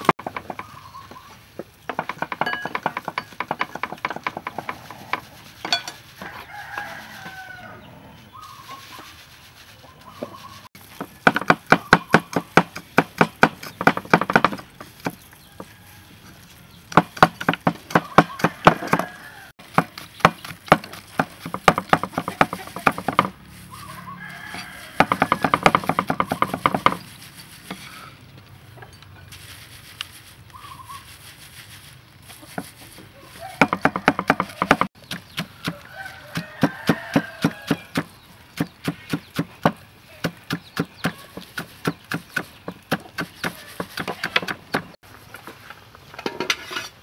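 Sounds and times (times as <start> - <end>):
chickens clucking: 0.0 - 1.6, 3.7 - 10.7
cleaver chopping on wooden board: 11.0 - 15.2, 16.9 - 23.4, 25.0 - 27.0, 33.6 - 44.9.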